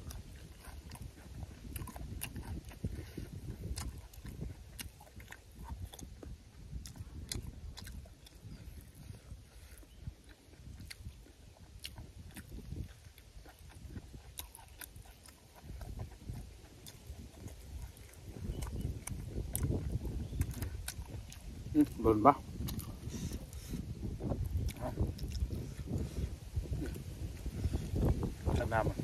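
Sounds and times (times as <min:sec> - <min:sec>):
person chewing wetly: 0:00.0 - 0:29.0
sharp mouth clicks: 0:11.8 - 0:21.5, 0:22.6 - 0:28.6
wet mouth smacks: 0:24.5 - 0:26.1.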